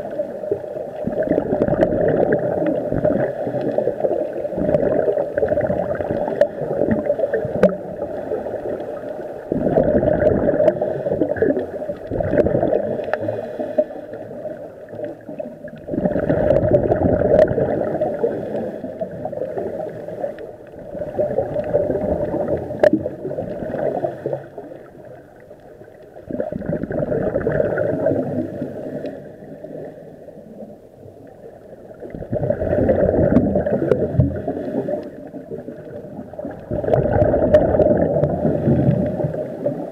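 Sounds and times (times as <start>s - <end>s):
exhaled bubbles gurgling: 0.0s - 39.9s
diver breathing through regulator: 10.2s - 14.6s, 17.7s - 20.5s, 23.7s - 24.8s, 28.3s - 30.3s, 33.8s - 35.3s.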